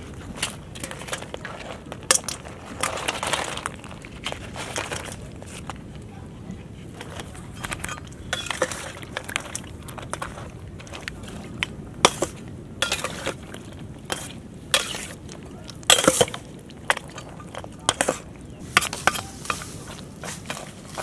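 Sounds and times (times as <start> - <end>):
spatula scraping a steel bowl: 12.1 - 13.4, 14.1 - 15.2.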